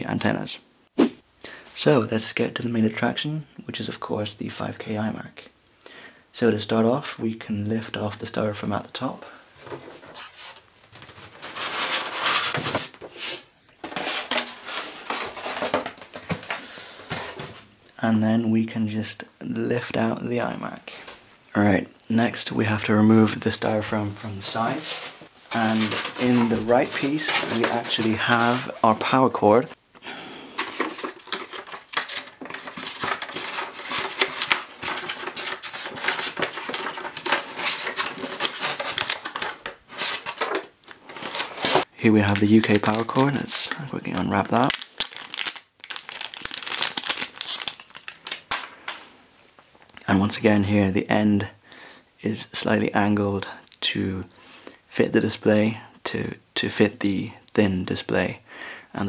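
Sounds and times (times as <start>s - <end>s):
styrofoam pieces scraping: 10.1s - 17.4s, 24.6s - 29.0s, 30.6s - 41.9s
styrofoam scraping against cardboard: 11.3s - 15.8s, 24.6s - 28.9s.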